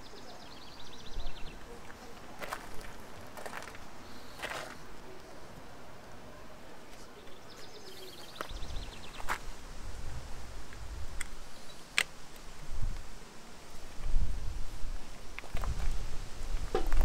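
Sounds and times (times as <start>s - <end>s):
handling rumble and rustle: 12.5s - 17.0s.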